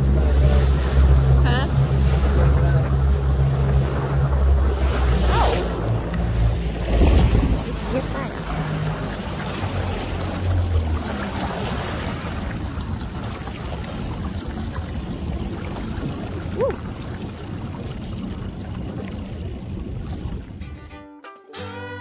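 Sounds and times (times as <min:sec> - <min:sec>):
small waves lapping: 0:00.0 - 0:20.7
boat engines droning: 0:00.0 - 0:20.8.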